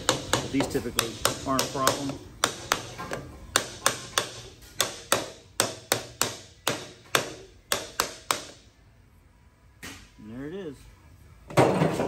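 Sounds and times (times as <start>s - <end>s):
hammer tapping on plastic pipe: 0.0s - 8.6s.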